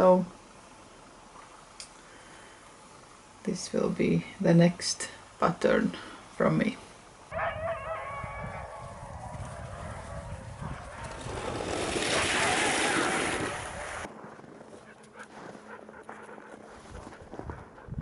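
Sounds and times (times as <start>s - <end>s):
wind rumbling on microphone: 7.3s - 15.7s, 16.6s - 18.0s
dog sled rushing past: 7.3s - 17.8s.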